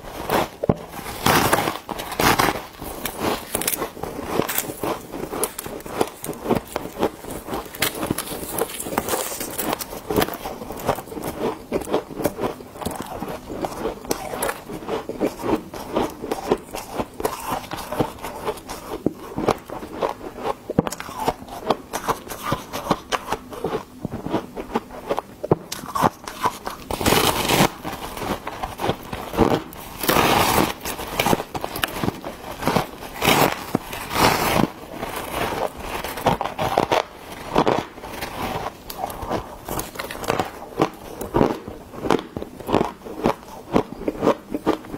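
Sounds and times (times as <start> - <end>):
chewing ice crackling: 1.0 - 44.9
loud crunching bites: 1.1 - 14.6.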